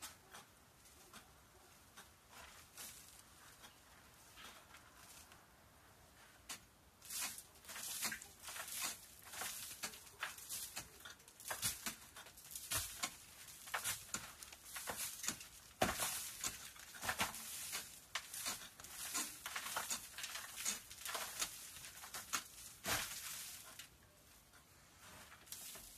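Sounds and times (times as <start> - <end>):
hand pick scraping rock: 6.5 - 23.9.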